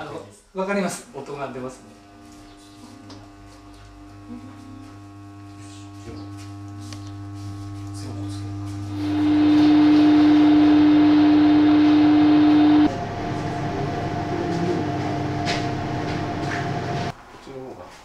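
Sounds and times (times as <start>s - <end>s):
blower fan whirring: 1.0s - 17.1s.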